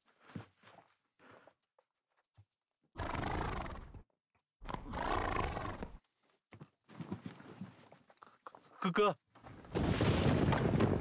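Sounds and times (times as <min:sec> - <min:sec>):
horse whinnying: 0:04.7 - 0:06.0.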